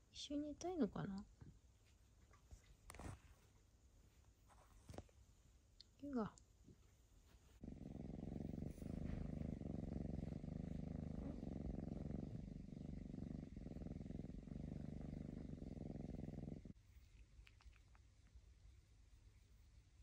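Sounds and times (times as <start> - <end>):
kitten purring: 7.3 - 20.0.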